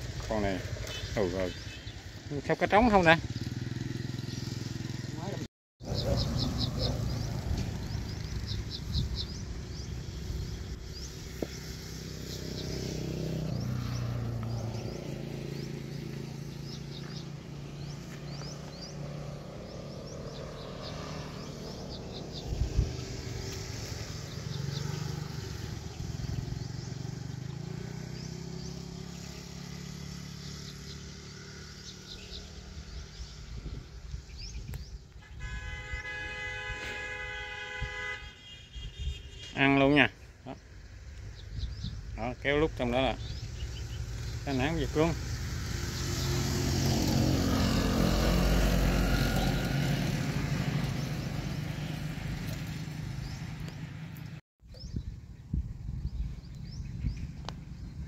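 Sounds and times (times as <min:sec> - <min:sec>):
small birds chirping: 0:00.0 - 0:37.1, 0:38.3 - 0:58.0
road traffic passing: 0:00.0 - 0:58.0
vehicle horn sounding: 0:35.2 - 0:39.9.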